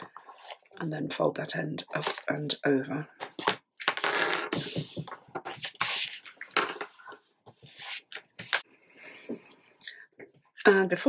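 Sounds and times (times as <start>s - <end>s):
paper rustling and rubbing: 0.0s - 0.8s, 4.7s - 8.6s.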